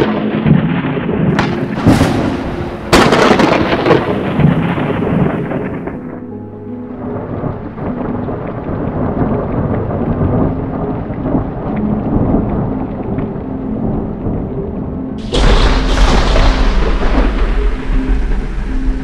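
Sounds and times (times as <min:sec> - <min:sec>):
loud thunder crash: 0:00.0 - 0:06.0, 0:15.2 - 0:19.0
rumbling thunder: 0:00.0 - 0:06.2, 0:07.1 - 0:13.3, 0:15.2 - 0:19.0
steady rain: 0:00.0 - 0:19.0.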